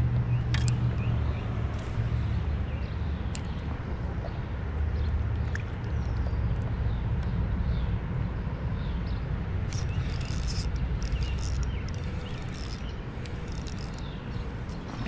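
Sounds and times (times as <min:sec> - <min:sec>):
low outdoor rumble: 0:00.0 - 0:15.0
fishing reel clicks and rattles: 0:00.5 - 0:01.1, 0:09.6 - 0:14.8.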